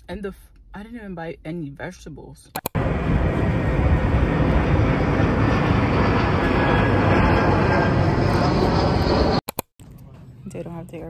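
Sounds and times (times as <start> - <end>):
vehicle rumbling rush: 2.8 - 11.0.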